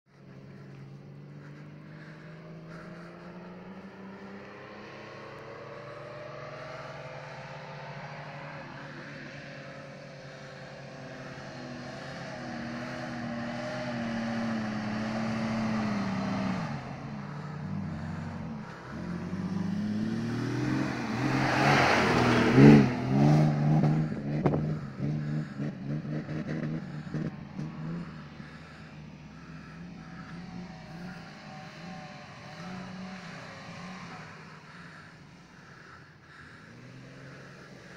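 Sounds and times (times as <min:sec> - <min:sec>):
off-road engine revving: 0:00.1 - 0:37.9.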